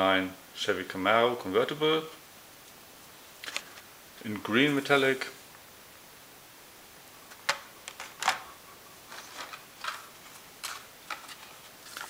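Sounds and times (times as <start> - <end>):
plastic packaging clicks and crackles: 3.4 - 3.9, 7.3 - 8.5, 9.1 - 12.0.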